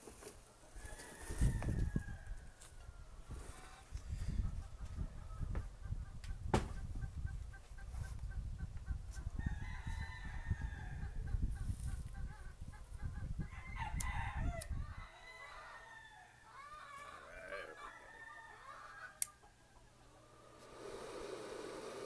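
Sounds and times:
rooster crowing: 0.8s - 2.7s, 9.4s - 11.1s, 13.5s - 19.4s
chickens clucking: 2.8s - 9.4s, 10.9s - 13.5s, 16.5s - 20.7s
sharp knock: 6.5s - 6.8s.

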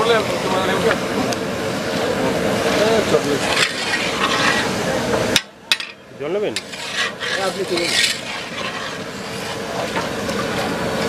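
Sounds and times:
metal ladle scraping iron pan: 2.7s - 4.8s, 5.4s - 10.1s.

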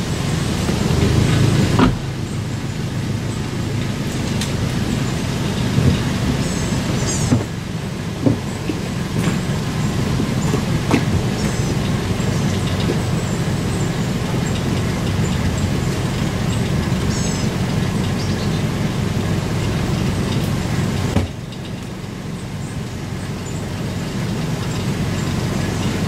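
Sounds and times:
truck engine idling: 0.0s - 26.0s
knocks and clunks in boat: 1.0s - 2.1s, 3.8s - 15.4s, 21.1s - 21.9s.

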